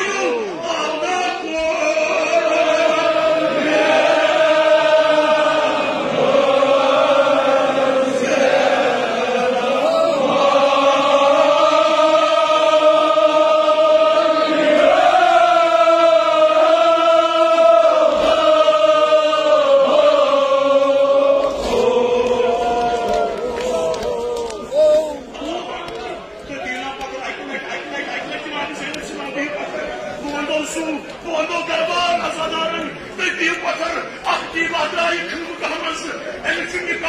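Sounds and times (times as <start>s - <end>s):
men chanting in unison: 0.0s - 25.6s.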